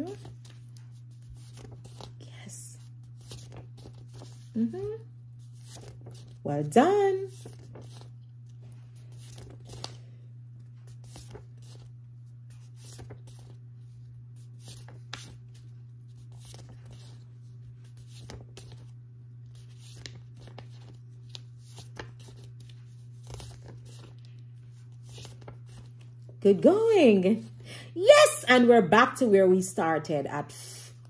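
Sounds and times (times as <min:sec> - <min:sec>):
steady low hum: 0:00.0 - 0:31.0
cards being flipped: 0:00.1 - 0:02.2, 0:03.0 - 0:04.6, 0:05.4 - 0:06.4, 0:07.3 - 0:10.0, 0:10.6 - 0:13.6, 0:14.4 - 0:26.2.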